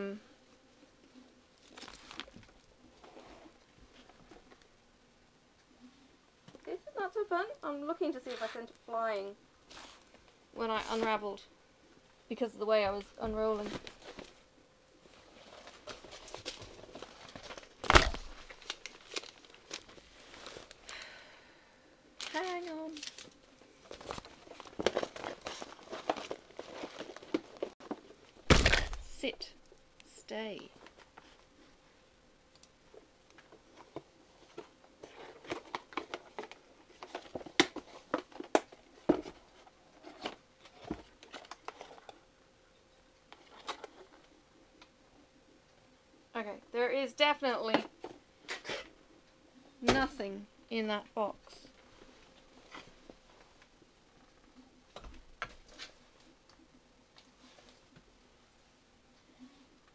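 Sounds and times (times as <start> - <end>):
plastic film rustling: 1.6 - 3.4, 15.1 - 21.0, 22.2 - 29.2.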